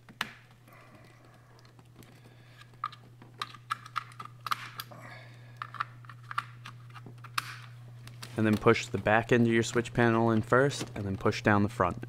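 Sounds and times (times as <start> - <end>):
plastic connectors clicking: 1.6 - 4.9.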